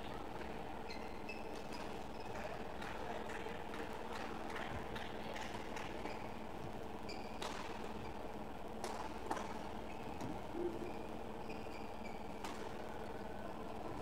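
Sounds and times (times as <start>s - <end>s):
shoe squeaks on court floor: 0.9s - 2.4s, 7.1s - 7.4s, 11.4s - 12.4s.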